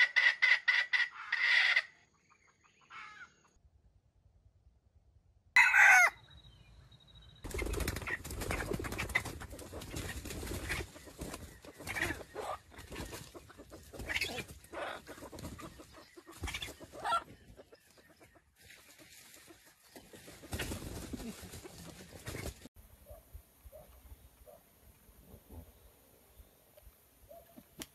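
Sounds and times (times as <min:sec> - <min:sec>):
rooster call: 0:05.6 - 0:06.2.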